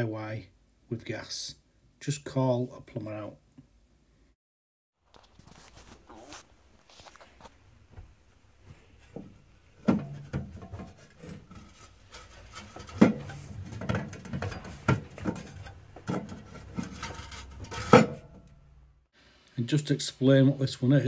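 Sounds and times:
metal flue pipe clanking: 8.6 - 18.9.

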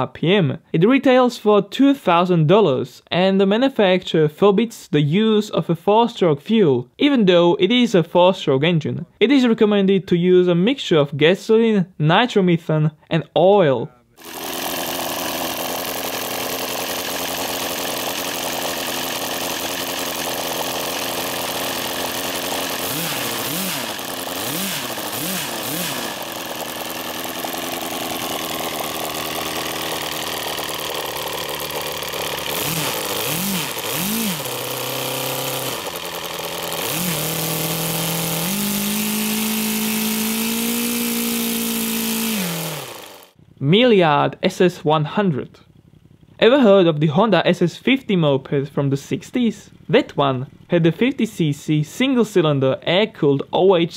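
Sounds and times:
model aircraft engine running: 14.2 - 43.6, 45.6 - 48.4.

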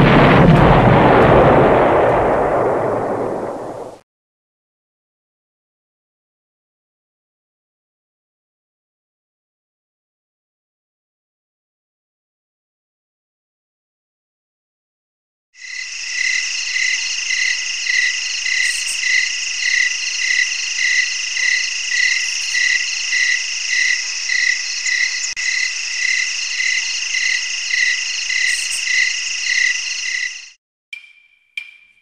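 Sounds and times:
crickets trilling: 15.6 - 30.6
insect chirping call: 15.6 - 32.0.

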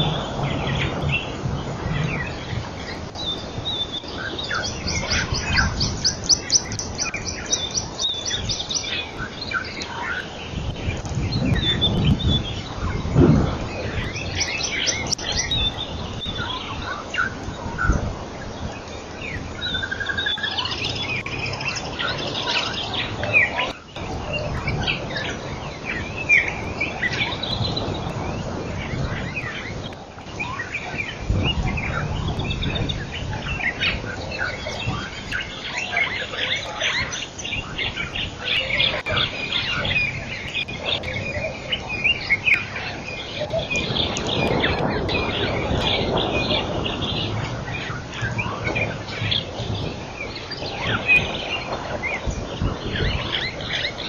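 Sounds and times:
low rumble: 0.0 - 17.0
small birds chirping: 0.0 - 54.0.

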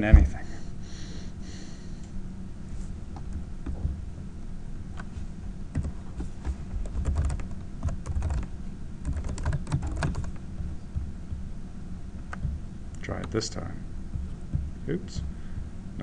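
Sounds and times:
low steady hum: 0.0 - 16.0
keyboard typing: 6.8 - 10.4.

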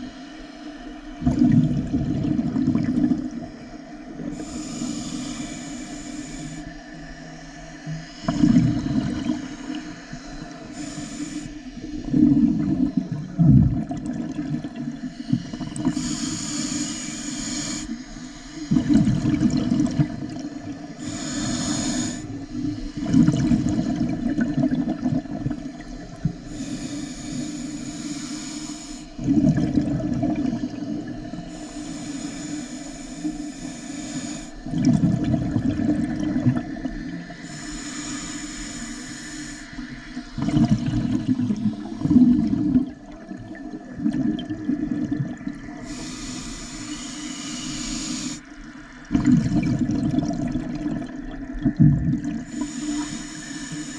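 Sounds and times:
gurgling exhaled bubbles: 1.2 - 3.5, 8.0 - 10.6, 11.8 - 16.4, 18.6 - 26.6, 29.2 - 31.4, 34.6 - 37.4, 40.3 - 46.0, 49.0 - 53.2
hissing regulator inhale: 3.2 - 13.4, 14.2 - 24.5, 25.7 - 29.3, 30.4 - 34.8, 36.3 - 40.4, 45.6 - 49.0, 52.4 - 53.9.

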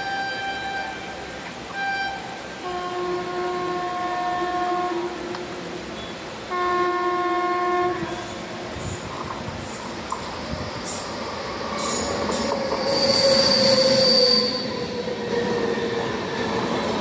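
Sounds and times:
locomotive air horn blasts: 0.0 - 5.4, 6.5 - 9.0
oncoming train rumble: 0.0 - 17.0
train running noise: 0.0 - 17.0.

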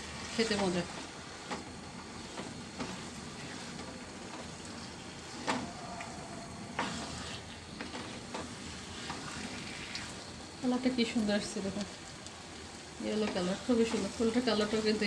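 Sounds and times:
food sizzling in frying pan: 0.0 - 15.0
spatula scraping pan: 2.1 - 10.4.

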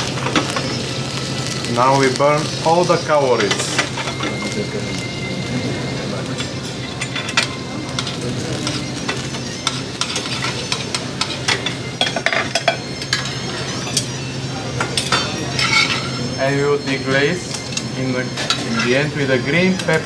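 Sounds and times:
meat sizzling in a pan: 0.0 - 14.1
cutlery clinking against pan: 14.8 - 16.2.

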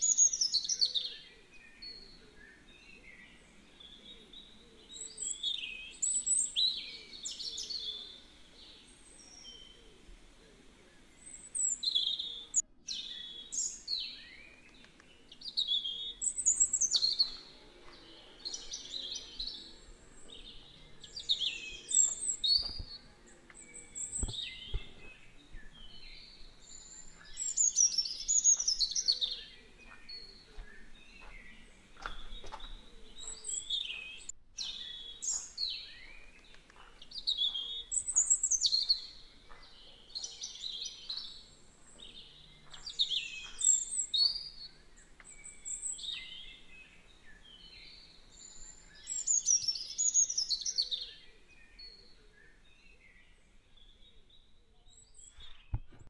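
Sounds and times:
birds chirping and singing: 0.0 - 56.0.

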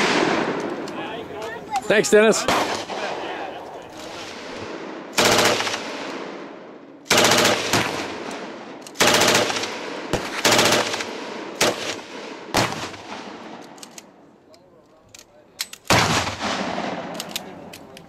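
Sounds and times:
gunfire echo off hills: 0.0 - 1.0, 2.4 - 14.2, 15.8 - 17.6
machine gun automatic bursts: 5.2 - 5.9, 7.1 - 8.1, 9.0 - 9.7, 10.3 - 12.0.

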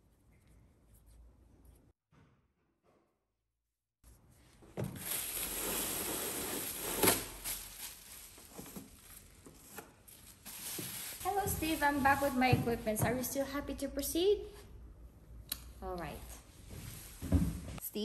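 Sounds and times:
plastic apron crinkling: 4.7 - 12.7.

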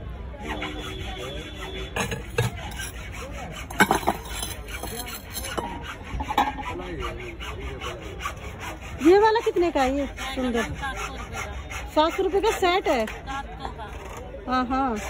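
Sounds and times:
faint background chatter: 0.0 - 15.0
ceramic bowls clinking: 2.0 - 3.0, 3.8 - 5.7.

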